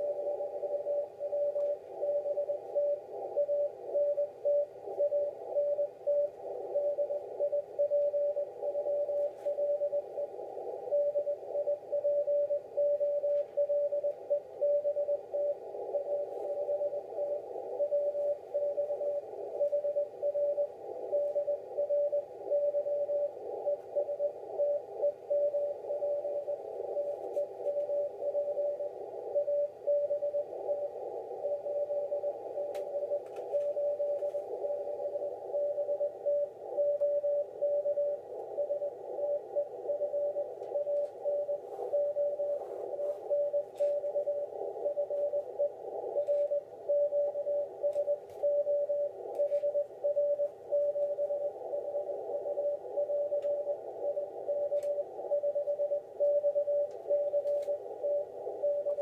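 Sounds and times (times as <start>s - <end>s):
morse code beeps: 0.0s - 59.0s.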